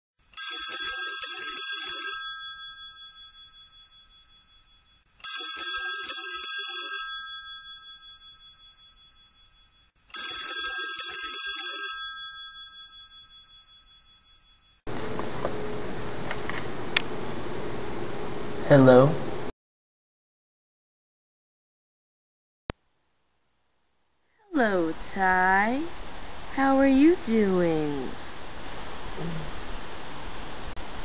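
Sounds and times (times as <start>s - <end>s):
telephone ringing: 0.4s - 14.9s.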